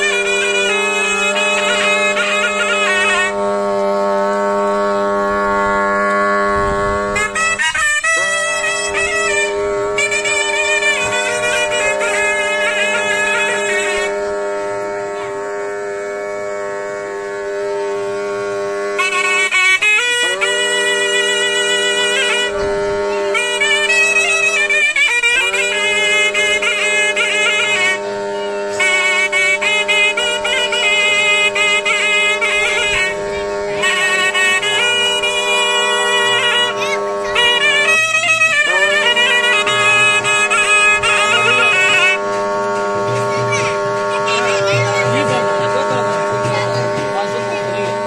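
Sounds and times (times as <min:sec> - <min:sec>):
reedy wind instrument melody: 0:00.0 - 0:48.0.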